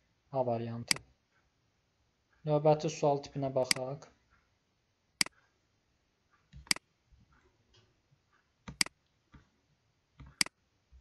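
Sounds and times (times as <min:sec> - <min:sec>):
computer mouse clicks: 0:00.9 - 0:01.1, 0:03.7 - 0:04.4, 0:06.4 - 0:06.9, 0:08.3 - 0:09.5, 0:10.2 - 0:10.6.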